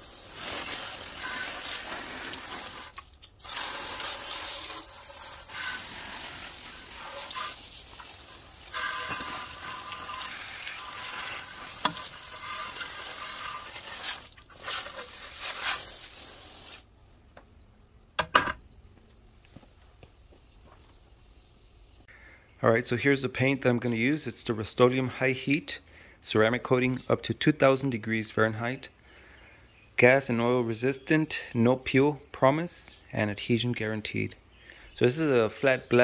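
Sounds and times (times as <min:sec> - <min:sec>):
water spraying from hose: 0:00.0 - 0:17.0.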